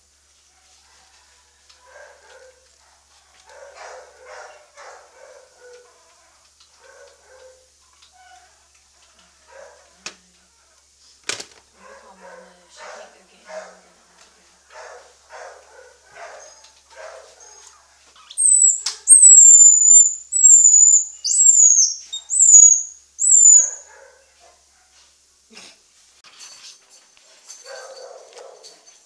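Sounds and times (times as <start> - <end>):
baby squirrel squealing: 18.2 - 23.9.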